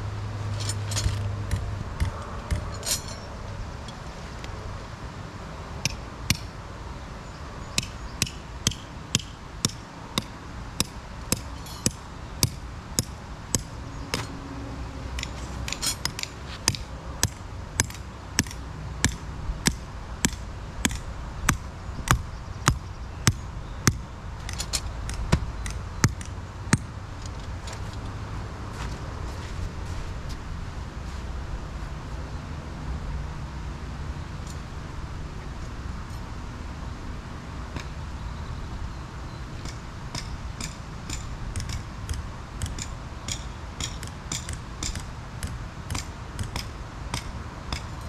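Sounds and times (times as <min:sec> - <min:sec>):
hammer striking metal stake: 0:07.8 - 0:14.3, 0:15.2 - 0:26.9, 0:39.6 - 0:48.0.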